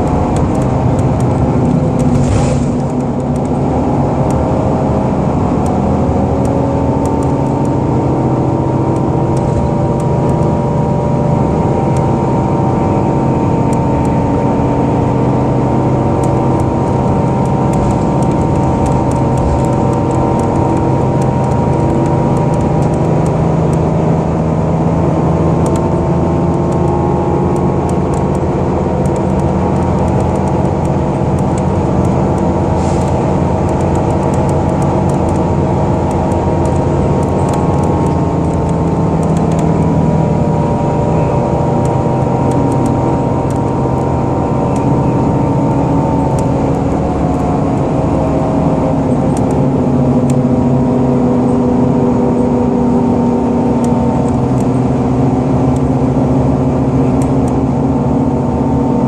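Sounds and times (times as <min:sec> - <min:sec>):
bus engine drone: 0:00.0 - 0:59.0.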